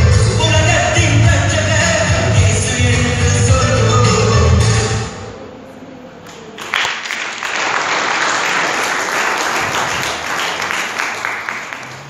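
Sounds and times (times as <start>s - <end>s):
live song: 0.0s - 7.0s
audience applause: 6.3s - 12.0s.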